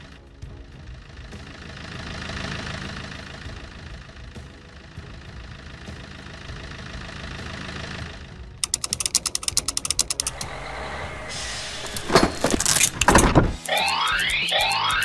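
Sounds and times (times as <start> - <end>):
crane engine running: 0.0 - 15.0
winch ratcheting clatter: 8.6 - 10.6, 11.7 - 15.0.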